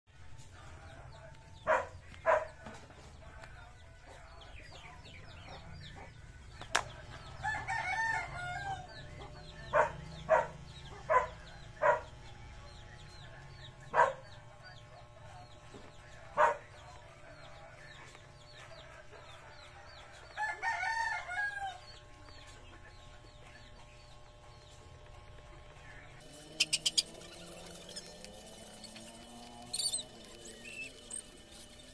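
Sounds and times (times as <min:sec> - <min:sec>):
small birds chirping: 0:00.4 - 0:31.9
rooster crowing: 0:07.4 - 0:09.0, 0:20.4 - 0:21.9
chickens clucking: 0:26.2 - 0:31.1.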